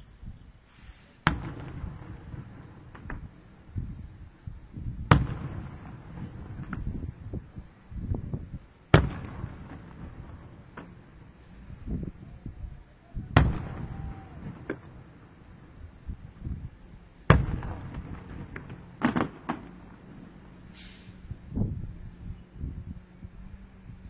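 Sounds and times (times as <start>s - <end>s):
firework pops and crackles: 1.2s - 4.1s, 4.9s - 11.3s, 13.4s - 15.2s, 17.2s - 21.2s
firework bangs with rumbling echo: 1.2s - 12.2s, 13.2s - 21.9s.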